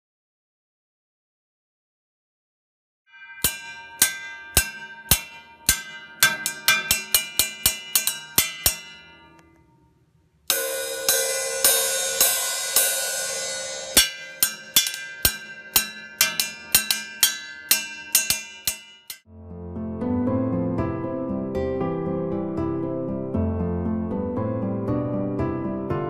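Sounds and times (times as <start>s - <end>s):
cymbal ringing brightly: 3.1s - 9.4s, 10.5s - 19.2s
copper cymbal strikes: 3.1s - 19.2s.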